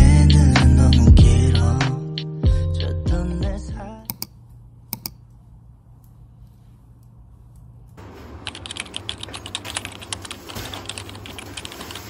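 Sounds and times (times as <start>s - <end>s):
low steady hum: 3.1s - 10.8s.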